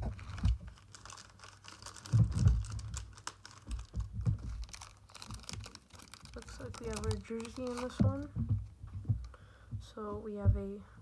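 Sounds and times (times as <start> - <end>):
foil wrappers crinkling: 0.0 - 8.3.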